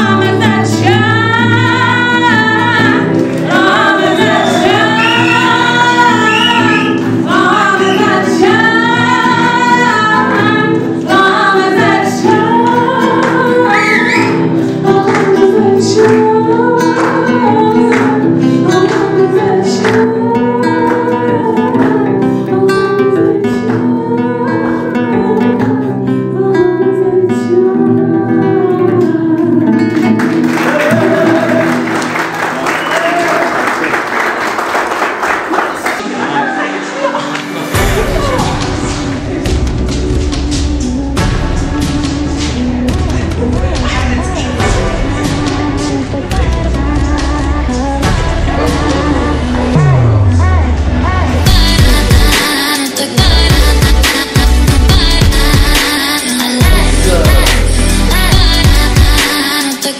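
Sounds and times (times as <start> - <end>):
strummed acoustic guitar: 0.0 - 32.4
person singing: 0.0 - 33.5, 36.0 - 59.9
audience applauding: 3.1 - 8.2, 30.0 - 37.9.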